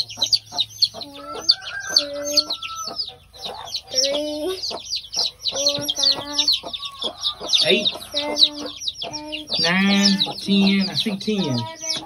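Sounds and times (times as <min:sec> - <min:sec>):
chicks peeping: 0:00.0 - 0:12.0
hen clucking: 0:00.0 - 0:12.0.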